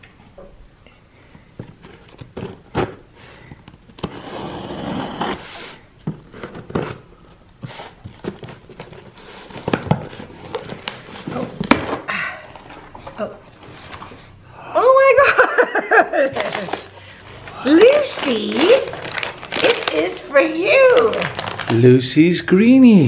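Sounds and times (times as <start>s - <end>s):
scissors scraping packing tape: 4.0s - 5.8s.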